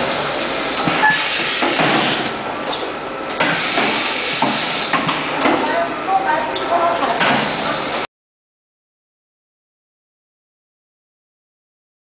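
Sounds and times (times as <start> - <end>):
bottling machinery clattering: 6.6 - 8.0.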